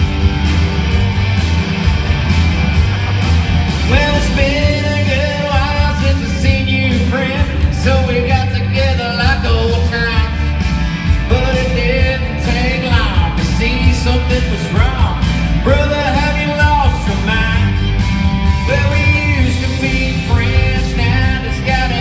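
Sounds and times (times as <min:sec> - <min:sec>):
strummed electric guitar: 0:00.0 - 0:22.0
man singing into microphone: 0:03.9 - 0:10.6, 0:11.2 - 0:17.8, 0:18.6 - 0:22.0.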